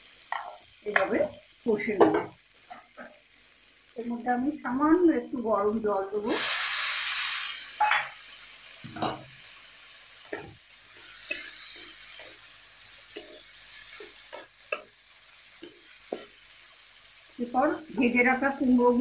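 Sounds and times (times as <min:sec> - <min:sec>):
food sizzling: 0:00.0 - 0:19.0
water hissing in hot oil: 0:00.0 - 0:19.0
spatula scraping a pan: 0:10.3 - 0:14.9.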